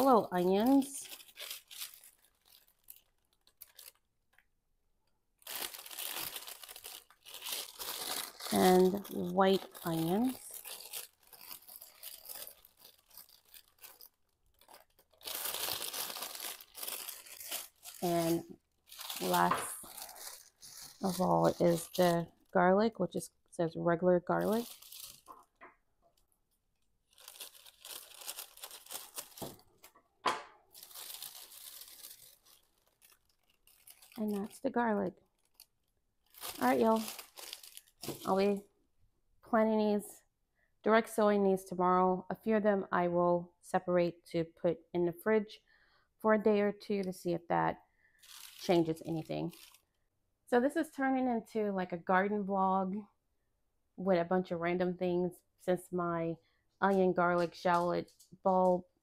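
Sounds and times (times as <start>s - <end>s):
bag crinkling: 0.0s - 4.4s, 5.4s - 22.6s, 24.3s - 25.6s, 26.8s - 30.0s, 30.7s - 38.6s, 48.2s - 49.9s.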